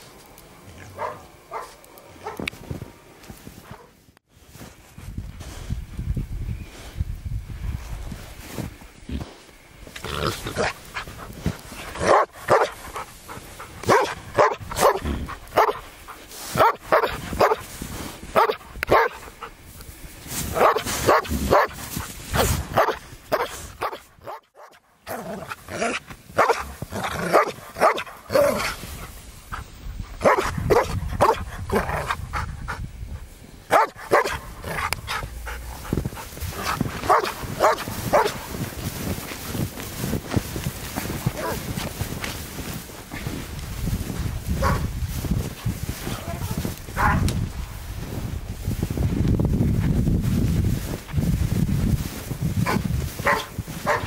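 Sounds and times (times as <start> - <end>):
dog barking: 1.0 - 2.4, 12.0 - 13.1, 13.8 - 15.8, 16.6 - 17.6, 18.4 - 19.5, 20.5 - 21.8, 22.7 - 24.8, 26.4 - 28.7, 30.2 - 32.2, 33.7 - 35.6, 36.5 - 38.5, 41.3 - 41.7, 44.6 - 44.9, 46.1 - 47.3, 52.6 - 54.0.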